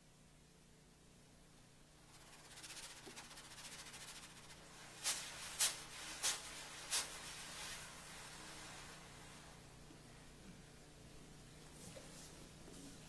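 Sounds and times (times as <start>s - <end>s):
sharp hissing shaker: 2.0s - 7.9s
dry percussion rattle: 2.1s - 5.8s.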